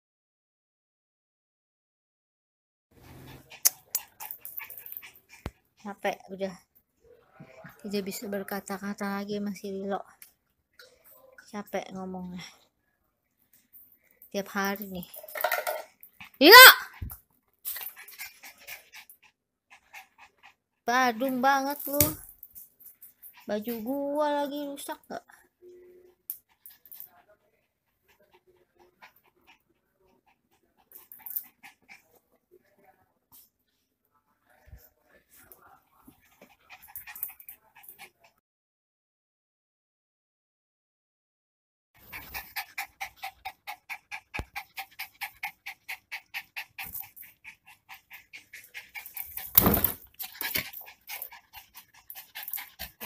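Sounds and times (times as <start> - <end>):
dog panting: 3.0 - 6.7, 14.3 - 33.6, 34.5 - 38.4, 42.0 - 53.0.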